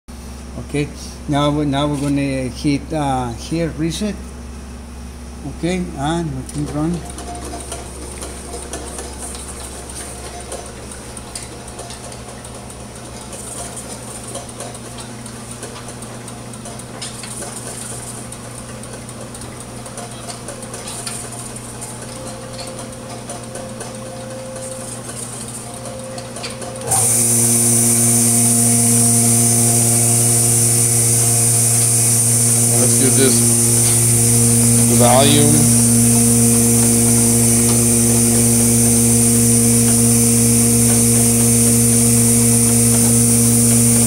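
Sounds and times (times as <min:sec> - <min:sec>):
machine humming and clicking: 0:00.2 - 0:44.0
strong buzz and high hiss: 0:26.8 - 0:44.0.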